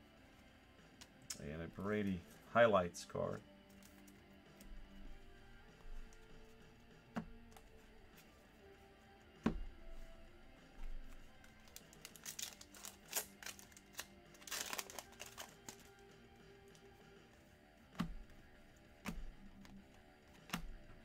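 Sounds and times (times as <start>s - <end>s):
faint background music: 0.0s - 21.0s
wrapper crinkling and tearing: 11.4s - 16.0s.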